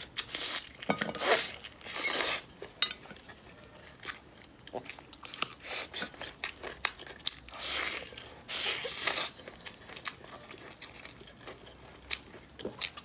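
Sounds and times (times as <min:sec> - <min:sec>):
chewing and biting: 0:04.0 - 0:13.0.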